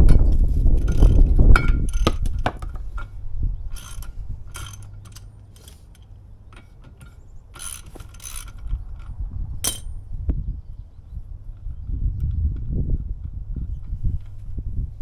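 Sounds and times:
socket ratchet clicking: 0:00.8 - 0:09.9.

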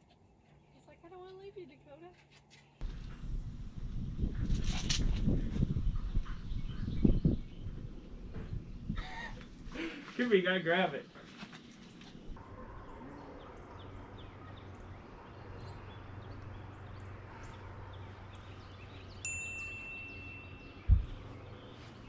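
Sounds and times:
low rumble: 0:02.8 - 0:09.0
bird chirps: 0:12.6 - 0:22.0
loud low thump: 0:20.9 - 0:21.3.

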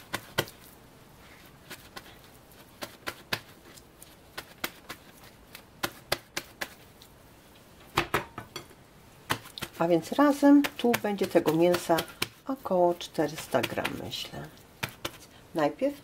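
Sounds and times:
paper towel crinkling and dabbing: 0:09.3 - 0:15.8.

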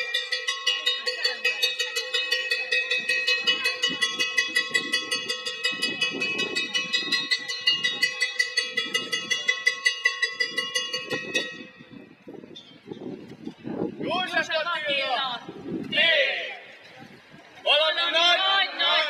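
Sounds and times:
metal bell rung rapidly: 0:00.0 - 0:12.2.

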